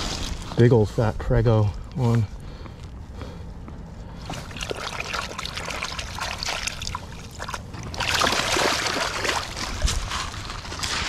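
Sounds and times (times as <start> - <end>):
shallow water splashing: 4.2 - 11.0
fish tail kicking in water: 4.3 - 10.4.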